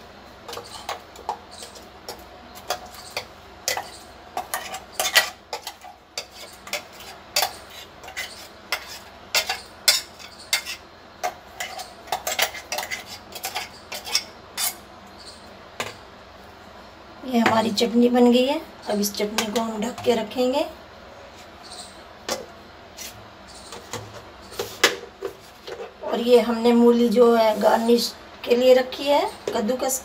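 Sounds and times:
spoon scraping steel jar: 0:00.5 - 0:14.8.

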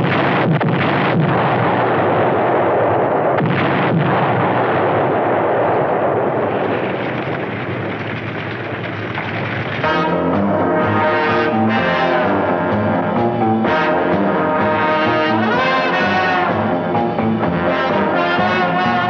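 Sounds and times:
explosion blasts: 0:00.0 - 0:19.0
rumble of burning building: 0:00.0 - 0:19.0.

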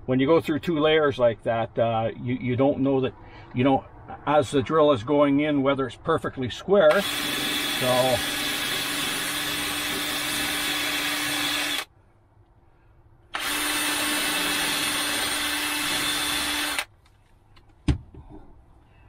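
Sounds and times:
cordless drill boring wood: 0:06.9 - 0:11.9, 0:13.3 - 0:16.9.

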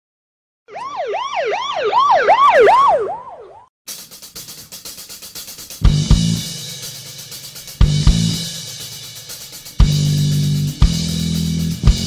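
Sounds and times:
siren yelping: 0:00.7 - 0:03.7
drum-driven music: 0:03.9 - 0:12.0.

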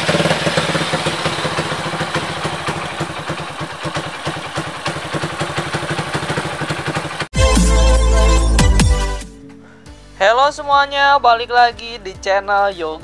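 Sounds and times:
motorcycle engine idling: 0:00.0 - 0:07.3.

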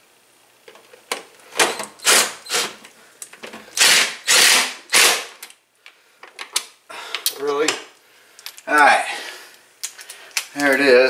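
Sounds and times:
cordless drill driving screw: 0:01.7 - 0:02.8, 0:03.8 - 0:05.3.

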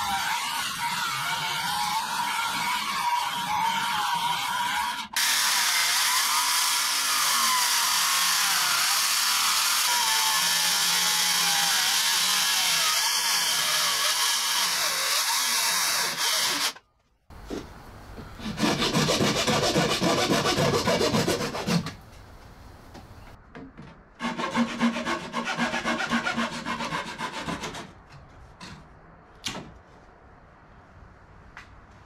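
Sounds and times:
jigsaw cutting wood: 0:00.0 - 0:16.8.

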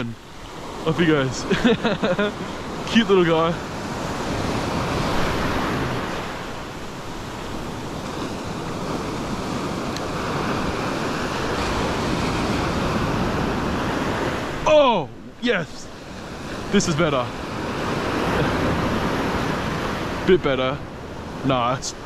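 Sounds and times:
surf washing up a beach: 0:00.0 - 0:22.0
wind on microphone: 0:03.5 - 0:20.3.

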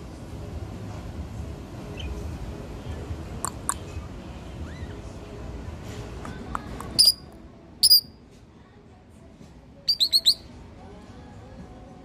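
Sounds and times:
lovebirds chirping: 0:07.0 - 0:07.2, 0:07.8 - 0:08.1, 0:09.9 - 0:10.5.

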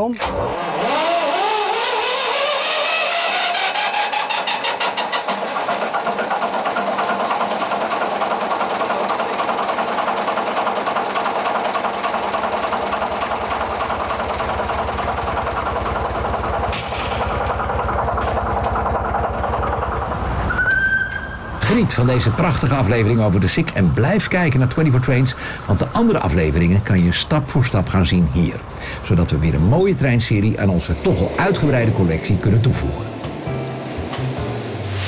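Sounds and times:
diesel locomotive engine starting: 0:00.0 - 0:35.0.

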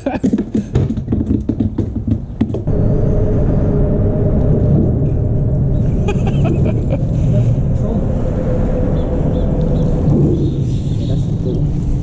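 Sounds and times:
loud low rumble: 0:02.6 - 0:12.0
steady hum: 0:02.7 - 0:12.0.

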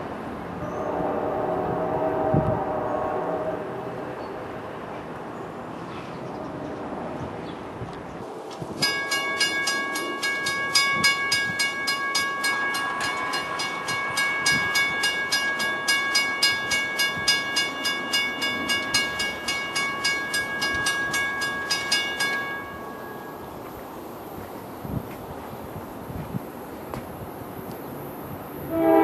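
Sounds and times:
railroad crossing bell ringing: 0:08.8 - 0:24.0.

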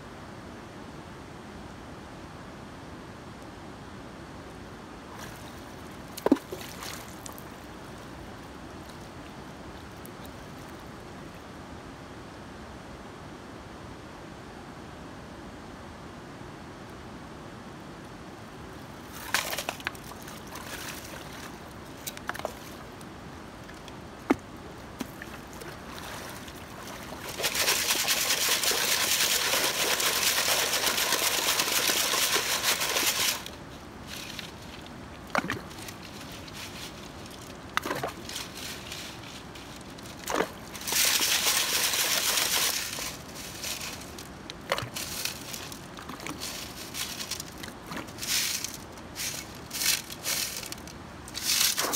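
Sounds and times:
water sloshing: 0:05.1 - 0:08.0, 0:23.6 - 0:51.9
gravel and stones clattering: 0:19.1 - 0:22.9, 0:24.3 - 0:51.9.

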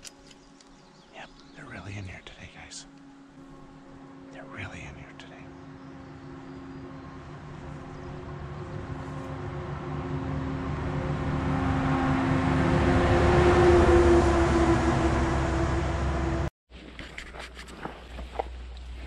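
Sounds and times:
passing vehicle engine hum: 0:02.9 - 0:16.5.

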